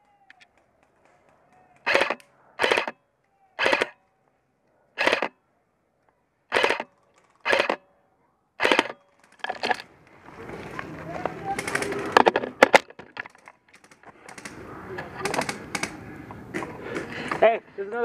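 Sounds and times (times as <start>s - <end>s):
airsoft rifle rapid shots: 1.8s - 3.0s, 3.6s - 4.0s, 5.0s - 5.3s, 6.5s - 7.8s, 8.6s - 9.0s.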